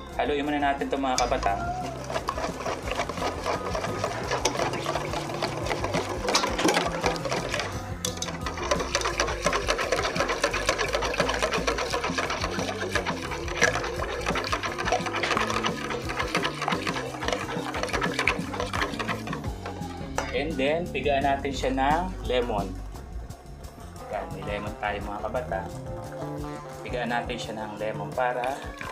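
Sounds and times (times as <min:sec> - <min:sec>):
whisk clicking against metal bowl: 0:01.0 - 0:19.6
wet slapping of sauce: 0:01.2 - 0:19.5.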